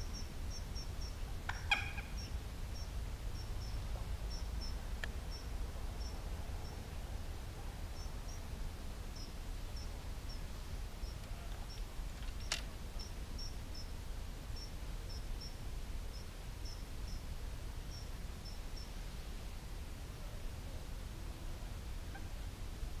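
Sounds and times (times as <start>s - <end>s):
small bird chirping: 0.0s - 6.8s, 7.9s - 8.5s, 9.2s - 14.0s, 14.6s - 17.3s.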